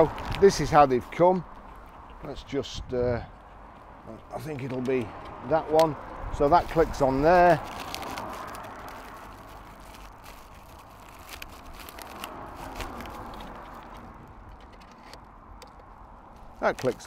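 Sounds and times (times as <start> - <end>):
plastic bag rustling: 6.4 - 14.1.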